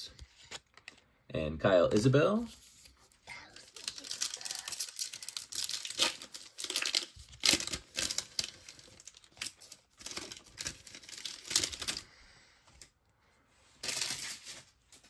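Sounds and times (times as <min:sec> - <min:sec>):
plastic wrapper tearing and crinkling: 0:03.4 - 0:12.1, 0:13.8 - 0:15.0.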